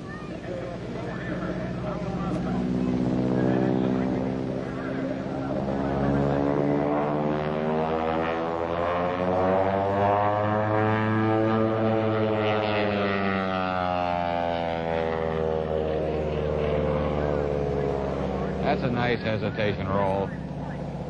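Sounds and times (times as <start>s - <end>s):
biplane engine and propeller: 0.0s - 21.0s.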